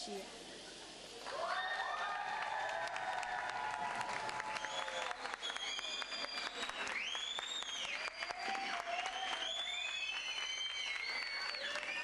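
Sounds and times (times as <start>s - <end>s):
crowd clapping: 1.2s - 12.0s
high drawn-out whistles: 4.5s - 12.0s.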